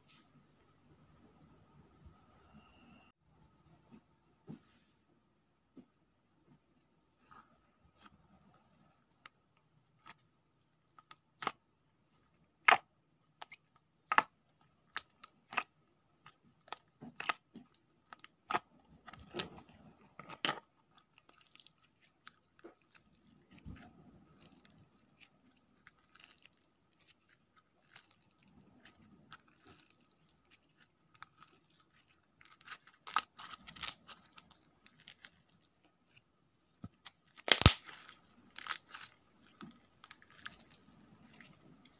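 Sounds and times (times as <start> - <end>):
slime squelching: 9.0 - 11.6, 12.2 - 41.9
slime clicking and popping: 13.4 - 15.7, 37.4 - 38.0.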